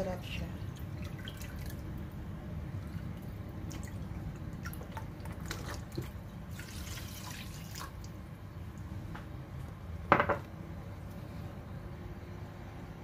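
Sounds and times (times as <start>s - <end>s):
low steady hum: 0.0s - 13.0s
broth trickling and splashing: 0.6s - 9.0s.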